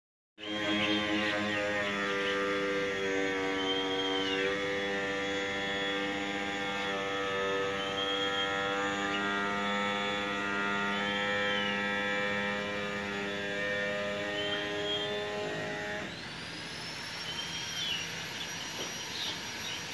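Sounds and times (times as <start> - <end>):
rising-and-falling whistle: 3.4 - 4.6, 7.6 - 8.9, 14.2 - 19.8.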